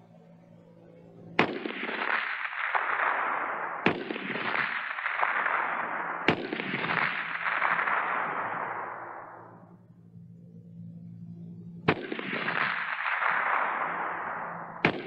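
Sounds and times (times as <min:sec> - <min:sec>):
rifle shots with long echo: 0:01.3 - 0:09.9, 0:11.8 - 0:15.0.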